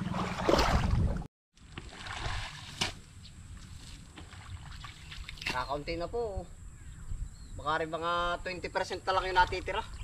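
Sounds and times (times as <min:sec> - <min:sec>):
water splashing and trickling: 0:00.0 - 0:05.9.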